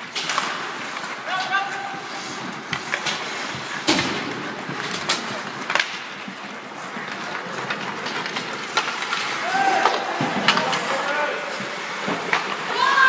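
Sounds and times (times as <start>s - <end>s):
skates scraping on ice: 0.0s - 13.0s
sticks and puck clacking: 0.0s - 13.0s.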